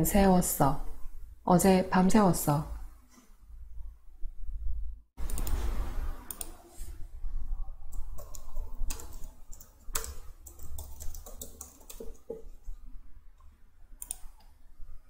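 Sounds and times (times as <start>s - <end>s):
keyboard keys clicking: 7.9s - 12.5s, 14.0s - 14.3s.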